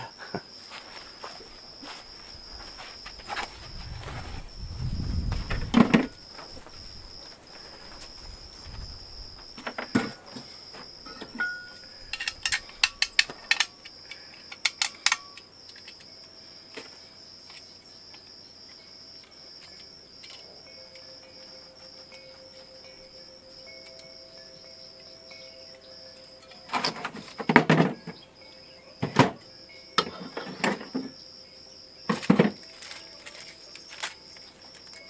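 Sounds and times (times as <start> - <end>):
crickets trilling: 0.0 - 35.0
metal parts clicking: 11.1 - 16.1, 32.2 - 35.0.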